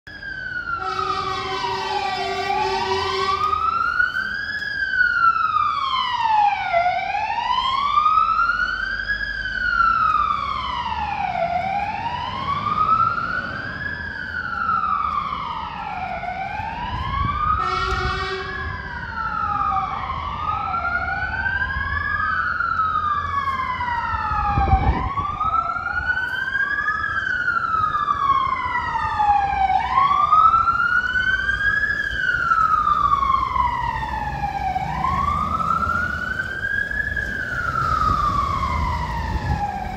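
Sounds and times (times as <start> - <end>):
fire engine siren wailing: 0.0 - 39.9
truck horn blast: 0.8 - 3.6, 17.6 - 18.6.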